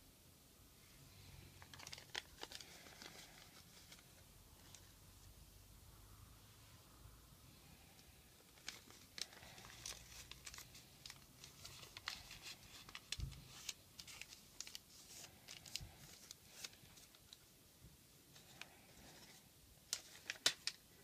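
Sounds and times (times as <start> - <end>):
paper crinkling: 1.6 - 5.0, 8.4 - 17.5, 18.3 - 21.0.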